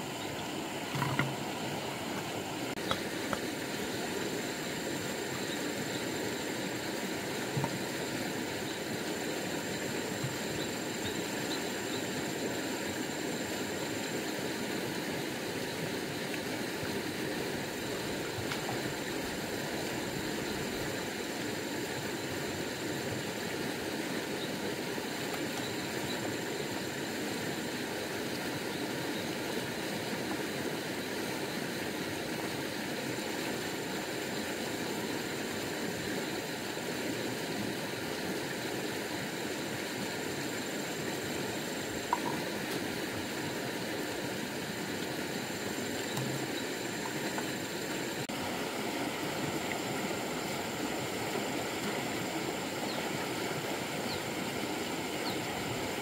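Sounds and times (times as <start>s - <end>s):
stream rushing over stones: 0.0s - 56.0s.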